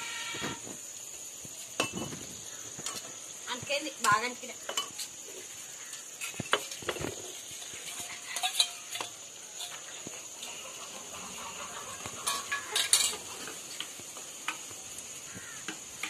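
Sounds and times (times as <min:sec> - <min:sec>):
spatula scraping a pan: 0:04.0 - 0:14.6.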